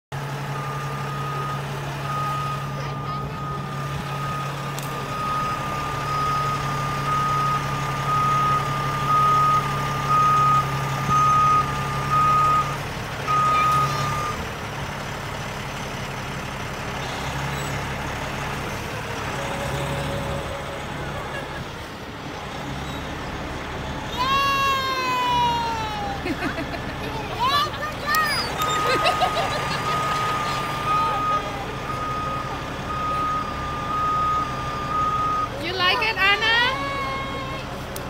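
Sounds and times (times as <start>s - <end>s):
diesel engine running: 0.1s - 38.0s
warning alarm beeping: 0.5s - 14.4s.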